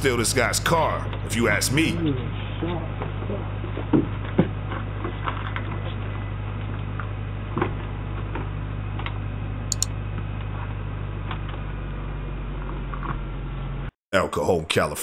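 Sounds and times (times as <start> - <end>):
low hum and hiss: 0.0 - 3.5
sharp double click: 9.7 - 9.9.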